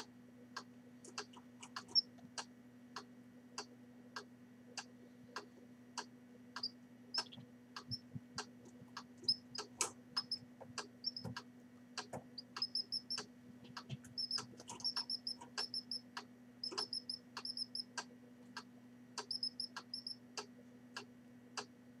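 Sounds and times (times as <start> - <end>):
canary chick peeping: 0.0 - 2.5, 6.0 - 16.0, 16.6 - 20.5
regular ticking: 0.0 - 21.7
steady low hum: 0.0 - 22.0.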